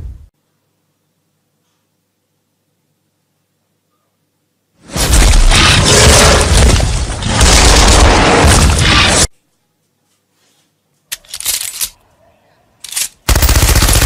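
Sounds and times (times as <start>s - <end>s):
debris noise: 4.8s - 9.3s
crashing boom with deep rumble: 4.9s - 9.3s.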